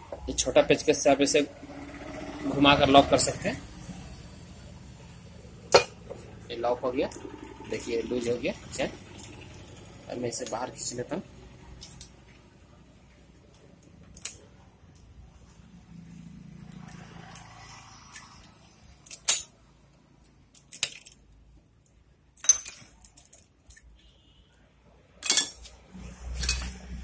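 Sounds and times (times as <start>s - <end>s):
metal tools clinking: 10.3s - 10.7s, 11.8s - 12.2s, 19.0s - 19.5s, 20.5s - 21.3s, 22.4s - 23.9s, 25.2s - 26.8s.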